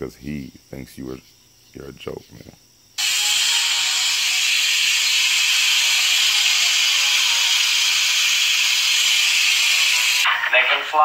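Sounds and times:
air hissing through a valve: 0:03.0 - 0:10.3.

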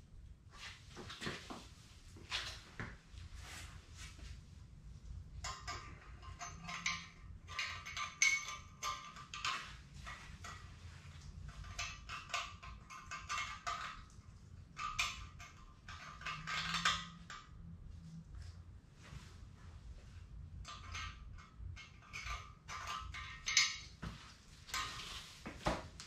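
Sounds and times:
small metal clicks and scrapes: 0:05.4 - 0:17.5.

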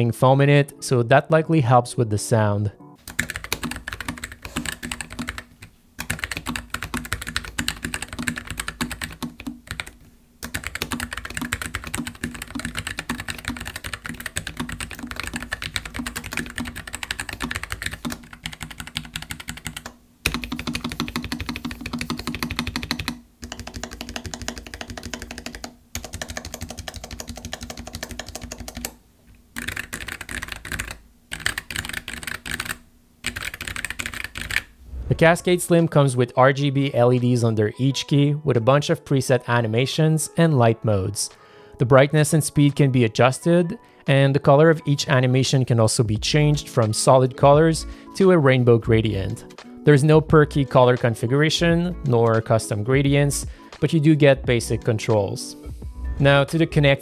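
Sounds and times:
fast typing on mechanical keyboard: 0:03.0 - 0:29.0, 0:29.6 - 0:34.7.

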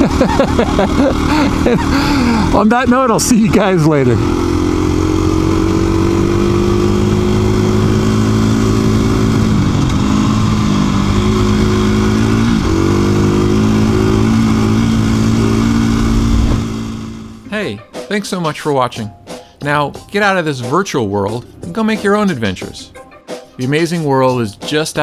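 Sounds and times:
motorcycle engine running: 0:00.0 - 0:17.5.

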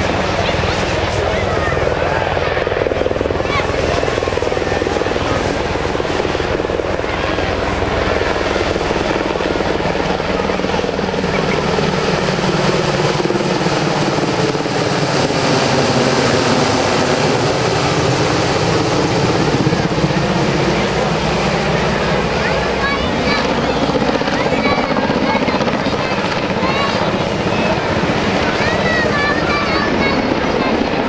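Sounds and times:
helicopter rotor: 0:00.0 - 0:31.0
turboprop engines droning: 0:00.0 - 0:31.0.

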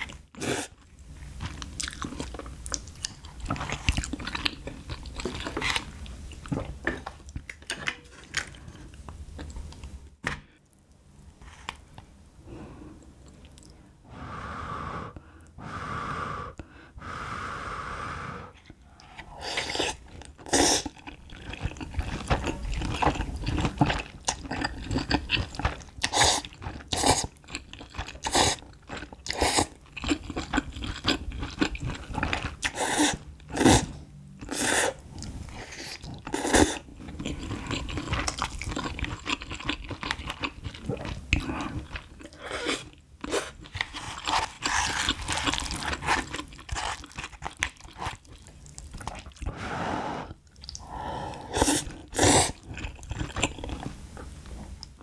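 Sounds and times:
noodles slurped and chewed: 0:00.0 - 0:06.8, 0:18.6 - 0:55.0
wet mouth sounds: 0:50.3 - 0:53.9.

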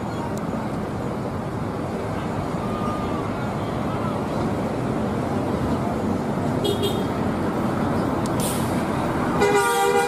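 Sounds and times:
buses passing: 0:00.0 - 0:10.0
short hiss: 0:08.4 - 0:08.9.

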